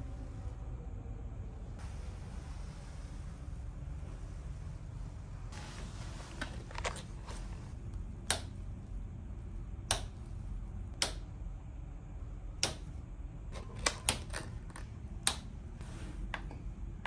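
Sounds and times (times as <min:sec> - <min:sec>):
low hum: 0:00.0 - 0:17.0
switch and button clicks: 0:08.2 - 0:08.6, 0:09.8 - 0:10.2, 0:11.0 - 0:11.3, 0:12.6 - 0:12.9.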